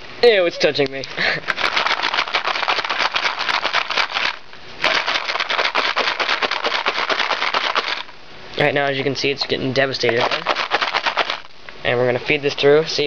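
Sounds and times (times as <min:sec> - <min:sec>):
paintballs rattling in hopper: 0:01.5 - 0:08.1, 0:10.0 - 0:11.6.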